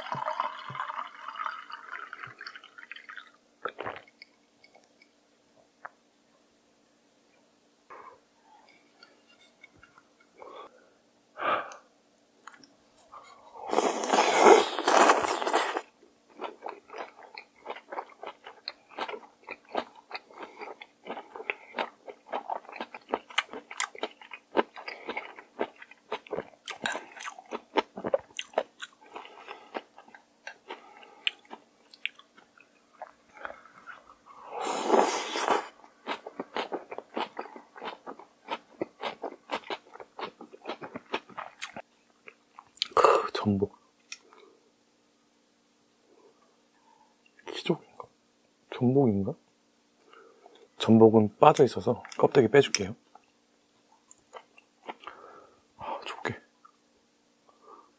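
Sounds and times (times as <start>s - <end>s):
loud slurps: 13.7s - 15.8s, 34.5s - 35.8s
wet crunching and chewing: 13.7s - 34.1s, 35.2s - 43.0s.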